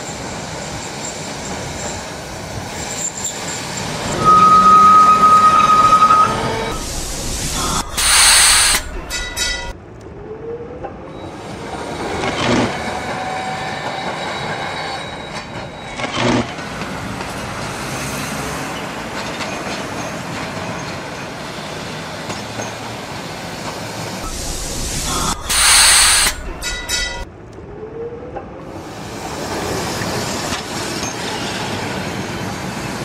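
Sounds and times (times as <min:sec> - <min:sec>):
tram wheels rumbling on rails: 0:00.0 - 0:33.0
loud air hiss: 0:06.7 - 0:09.7, 0:24.2 - 0:27.2.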